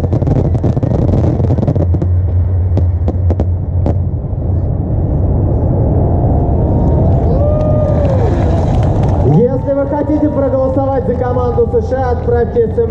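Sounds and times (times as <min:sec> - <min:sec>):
fireworks cracks: 0:00.0 - 0:04.0
low rumble: 0:00.0 - 0:12.9.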